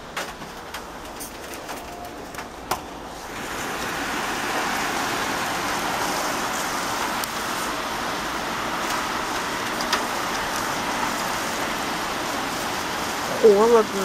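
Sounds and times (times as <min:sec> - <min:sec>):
heavy rain and gusting wind: 0:00.0 - 0:14.0.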